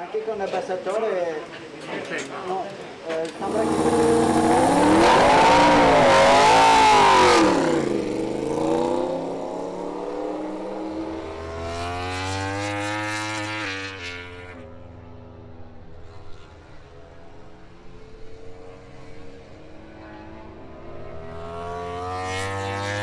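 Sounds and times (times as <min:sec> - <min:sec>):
motorcycle engine revving: 0:03.3 - 0:16.6, 0:18.4 - 0:23.0.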